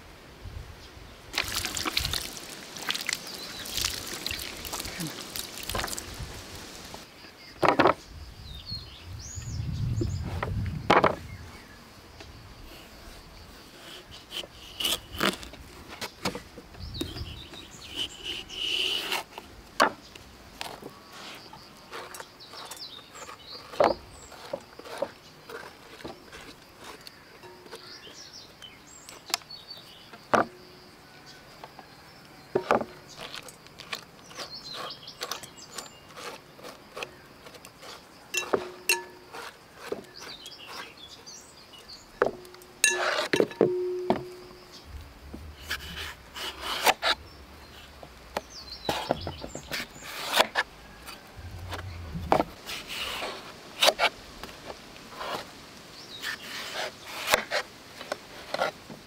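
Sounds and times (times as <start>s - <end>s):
spoon scraping melon seeds: 17.0s - 19.3s, 21.2s - 28.1s, 33.1s - 41.4s
spoon clinking on glass bowl: 38.4s - 39.2s, 42.8s - 44.5s.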